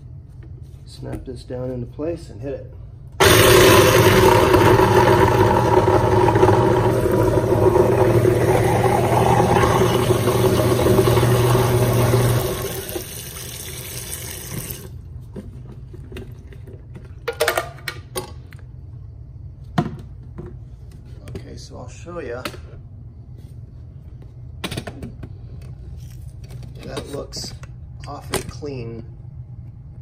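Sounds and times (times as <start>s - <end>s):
garbage disposal grinding ice: 3.2s - 14.9s
tap water pouring into drain: 5.0s - 14.9s.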